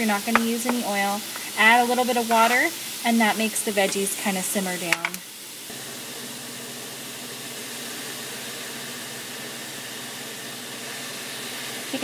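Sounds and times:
vegetables sizzling in frying pan: 0.0s - 12.0s.

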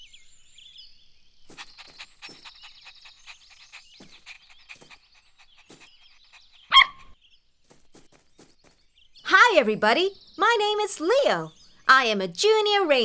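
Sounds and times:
small chirps and clicks: 1.5s - 7.1s
cartoon puppy barking: 6.7s - 7.1s.

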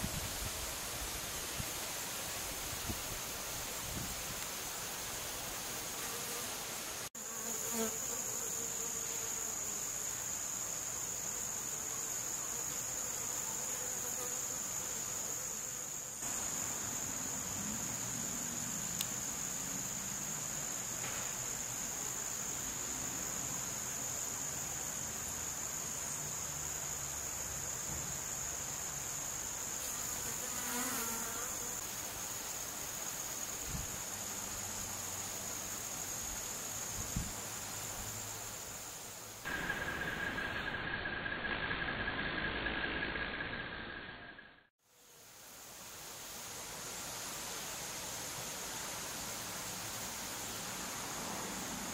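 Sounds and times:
high-pitched insect chorus: 0.0s - 51.9s
bees buzzing: 29.8s - 31.8s.

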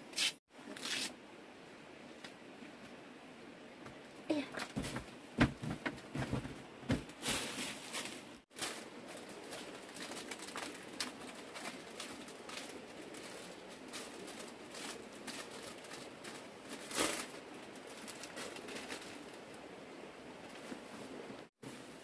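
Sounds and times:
plastic bags crinkling: 7.1s - 19.6s.

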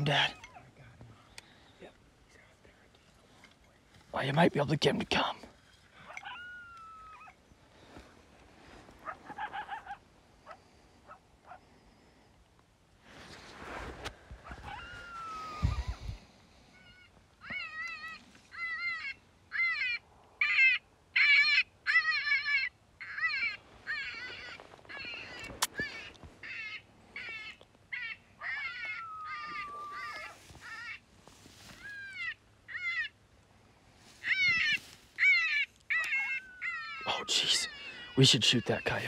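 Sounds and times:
electronic animal distress calls: 34.2s - 39.0s.

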